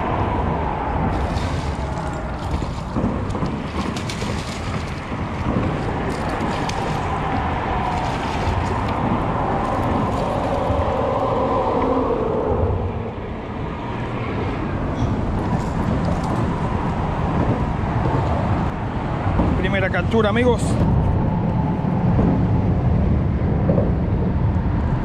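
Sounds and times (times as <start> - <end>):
road traffic rumble: 0.0 - 25.0.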